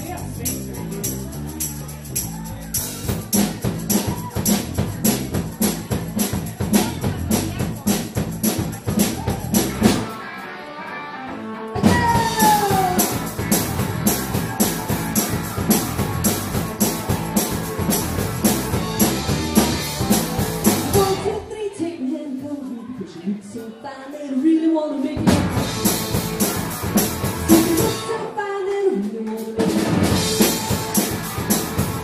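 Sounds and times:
drum kit: 0:00.0 - 0:10.2, 0:11.8 - 0:21.4, 0:25.2 - 0:28.3, 0:29.2 - 0:32.0
live rock band playing: 0:00.0 - 0:21.4, 0:25.2 - 0:28.4, 0:29.4 - 0:32.0
electric guitar: 0:09.5 - 0:21.4, 0:25.2 - 0:28.4, 0:29.6 - 0:32.0.

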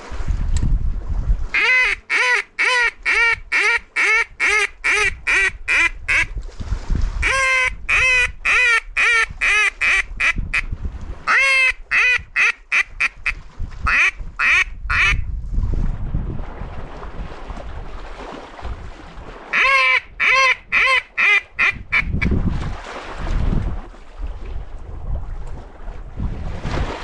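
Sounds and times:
duck call quacks: 0:01.6 - 0:06.3, 0:07.2 - 0:10.6, 0:11.3 - 0:15.2, 0:19.5 - 0:22.2.

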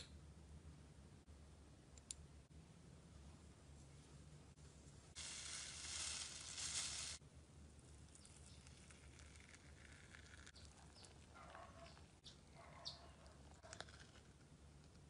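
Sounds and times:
sequins pouring onto slime: 0:05.2 - 0:07.2.

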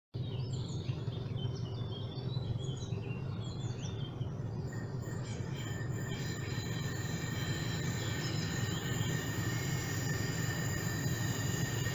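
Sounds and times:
birds chirping and singing: 0:00.2 - 0:11.9
high-pitched train whine: 0:02.4 - 0:11.9.

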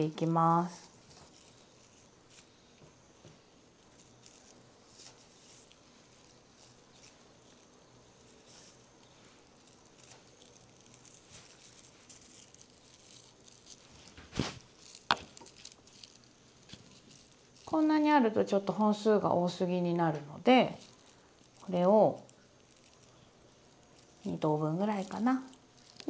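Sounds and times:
dried stems rustling and crackling: 0:00.0 - 0:26.0.

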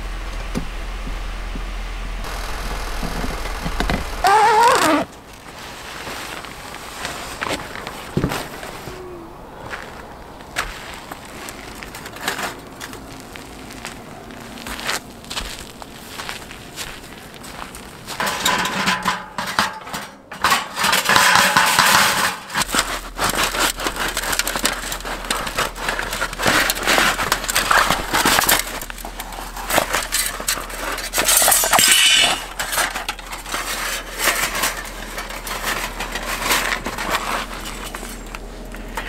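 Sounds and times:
metal panels clattering: 0:18.2 - 0:39.0.

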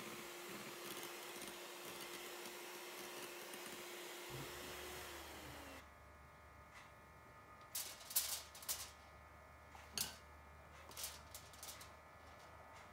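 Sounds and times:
electric hand mixer whirring: 0:00.0 - 0:05.8.

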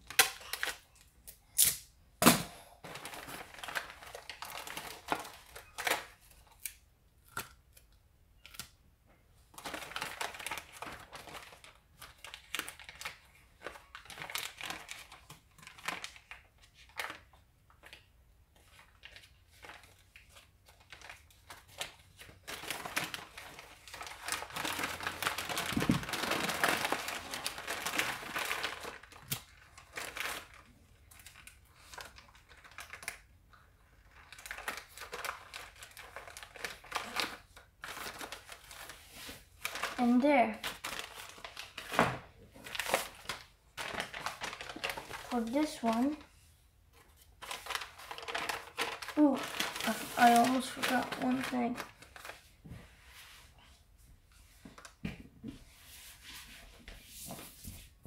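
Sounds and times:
sharp paper snaps: 0:00.1 - 0:02.4
paper crinkling and rustling: 0:02.8 - 0:06.7, 0:09.5 - 0:53.7, 0:54.3 - 0:58.0.

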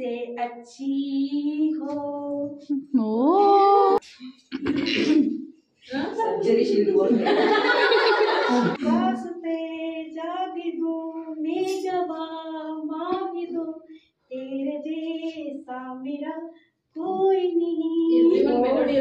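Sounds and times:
woman singing: 0:00.0 - 0:04.0, 0:08.8 - 0:19.0.

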